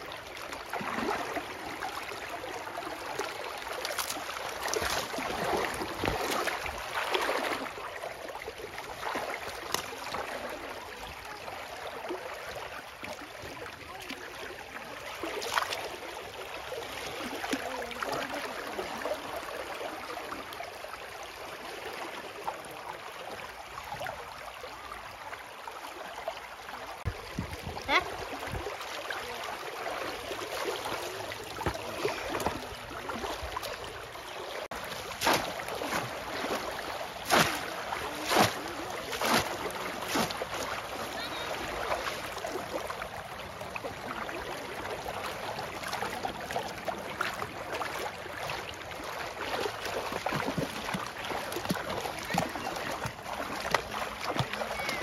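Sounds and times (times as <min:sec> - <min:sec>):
pond water splashing and sloshing: 0:00.0 - 0:55.0.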